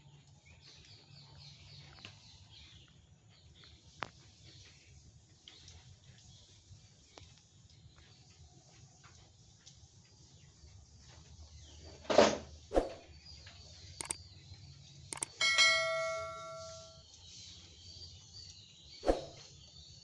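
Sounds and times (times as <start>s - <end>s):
swish: 12.7s - 13.0s, 19.0s - 19.4s
mouse clicks: 15.2s - 15.4s
bright bell ding: 15.2s - 17.0s.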